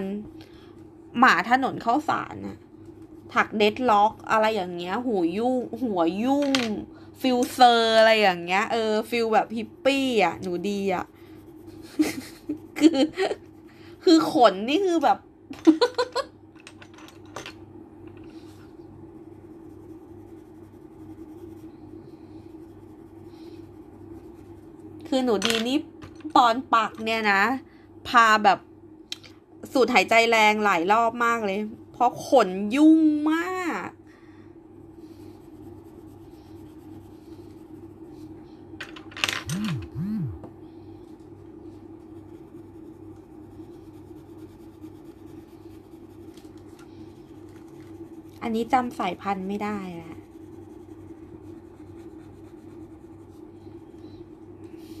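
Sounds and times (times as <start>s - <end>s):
low steady hum: 0.0s - 55.0s
pencil rubbing on paper: 8.6s - 12.8s, 18.5s - 25.0s, 34.9s - 38.3s, 41.7s - 53.9s
swooping low tones: 39.5s - 40.5s.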